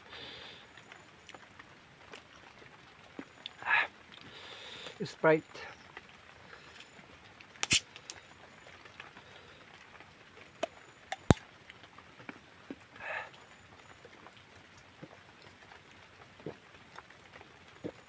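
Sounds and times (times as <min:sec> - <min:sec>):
plastic bottle cap cracking: 0:07.6 - 0:08.1, 0:10.6 - 0:11.4.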